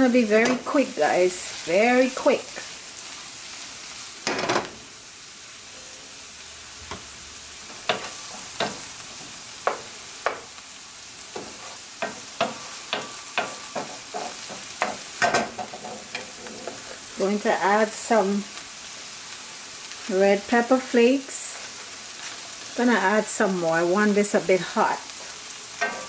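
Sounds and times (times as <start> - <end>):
vegetables sizzling in oil: 0.0 - 26.0
wooden spoon scraping pan: 11.4 - 17.2.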